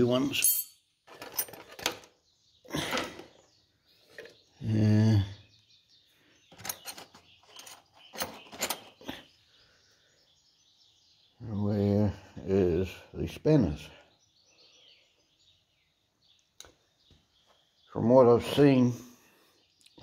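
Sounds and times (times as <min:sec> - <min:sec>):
metal spanners clinking on engine: 0:00.0 - 0:02.1, 0:06.5 - 0:09.0.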